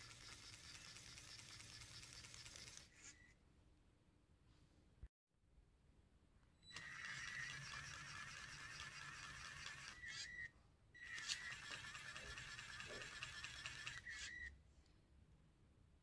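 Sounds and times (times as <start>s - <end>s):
small electric motor whining: 0.0s - 3.0s, 6.7s - 14.5s.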